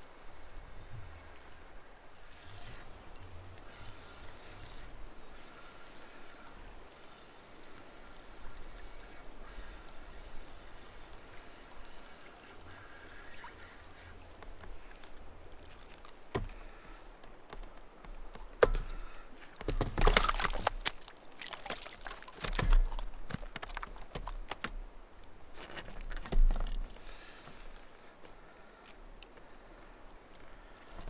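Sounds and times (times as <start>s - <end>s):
fish splashing and thrashing: 18.4s - 24.8s.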